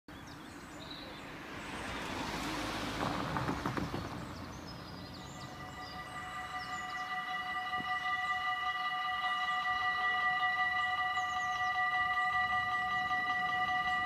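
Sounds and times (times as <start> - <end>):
small birds chirping: 0.1 - 2.1, 3.8 - 10.0, 10.6 - 14.0
car driving past: 0.6 - 8.3
wheels knocking over rails: 3.0 - 4.4.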